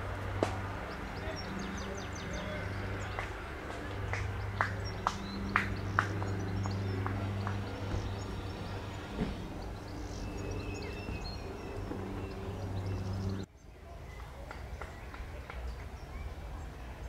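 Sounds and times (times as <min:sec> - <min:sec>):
train engine idling: 0:00.0 - 0:13.4
birds chirping: 0:00.0 - 0:16.8.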